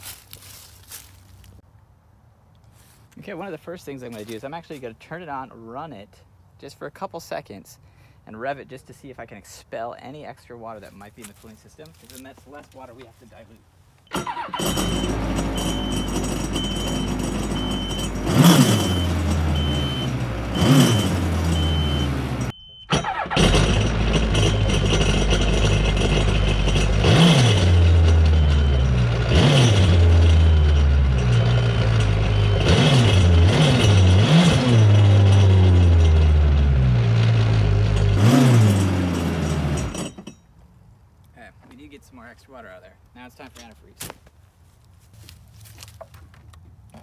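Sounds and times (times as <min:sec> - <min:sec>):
high beeping: 0:14.1 - 0:23.4, 0:28.3 - 0:29.1, 0:30.0 - 0:33.4
jet ski engine revving: 0:14.2 - 0:22.5, 0:29.0 - 0:30.4, 0:32.6 - 0:40.0.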